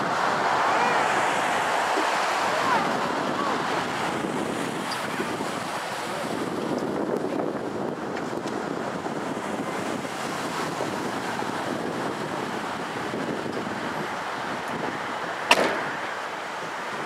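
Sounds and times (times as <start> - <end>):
steady noisy rush: 0.0 - 17.0
sharp firework crack: 15.5 - 16.0.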